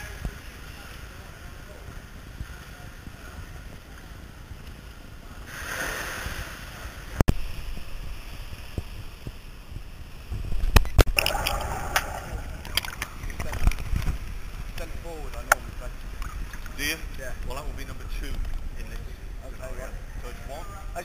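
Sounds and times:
pool water splashing: 5.3s - 10.4s, 11.1s - 17.1s.

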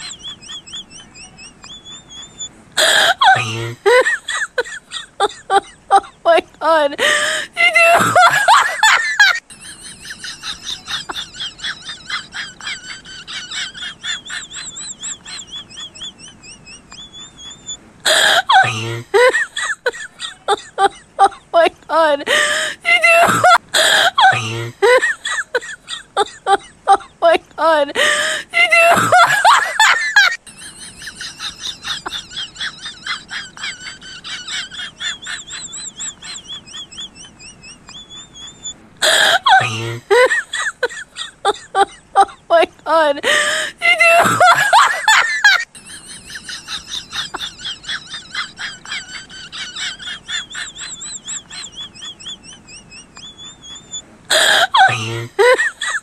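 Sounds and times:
young animal high-pitched peeps: 0.0s - 2.5s.

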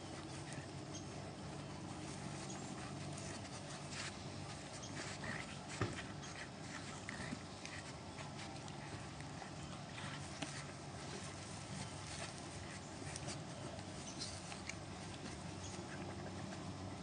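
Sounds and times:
dogs scuffling: 0.0s - 17.0s.

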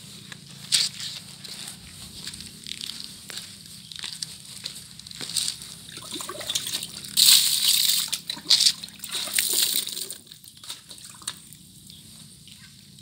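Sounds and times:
water pouring and splashing: 5.9s - 11.4s.

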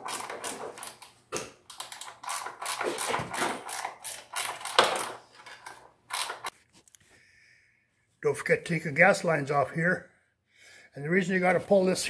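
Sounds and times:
ratchet wrench clicking: 6.1s - 6.5s.

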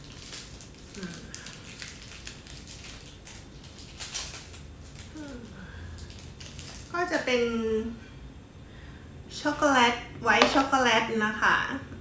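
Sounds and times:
plastic wrapper crinkling: 0.0s - 5.3s, 6.0s - 6.9s.

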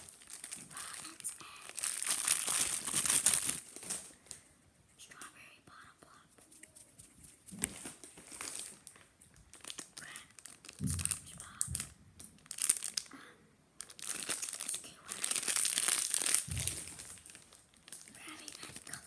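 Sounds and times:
plastic wrapper crinkling and tearing: 0.0s - 4.4s, 7.5s - 13.1s, 13.8s - 19.0s.

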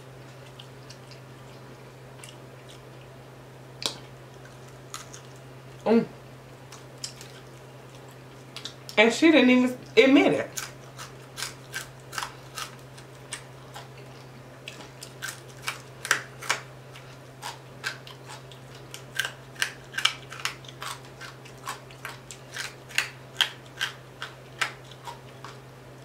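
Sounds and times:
low steady hum: 0.0s - 26.0s
crunching fried fish: 3.8s - 5.5s, 10.5s - 25.7s.

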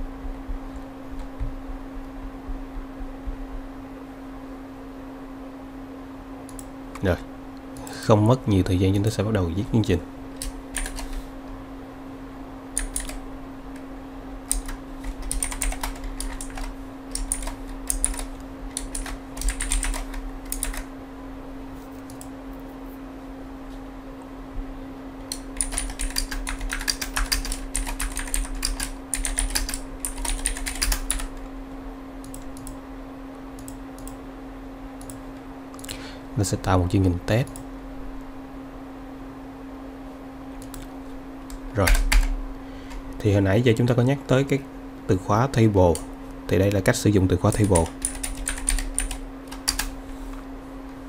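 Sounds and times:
steady low hum: 0.0s - 51.0s
computer keyboard typing: 10.4s - 11.2s, 12.8s - 13.9s, 14.5s - 20.9s, 25.3s - 31.4s, 41.8s - 42.4s, 47.4s - 50.0s.

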